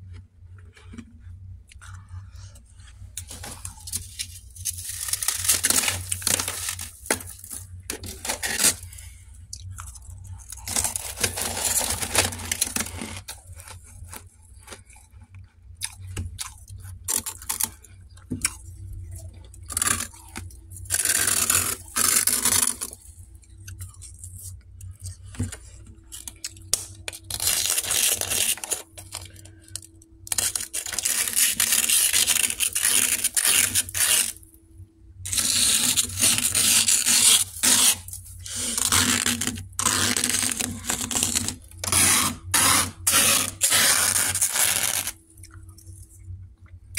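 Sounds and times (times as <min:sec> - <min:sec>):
faint steady hum: 0:00.0 - 0:46.9
spoon scraping frost: 0:09.8 - 0:15.0, 0:26.1 - 0:29.7, 0:30.3 - 0:34.4, 0:35.3 - 0:45.2.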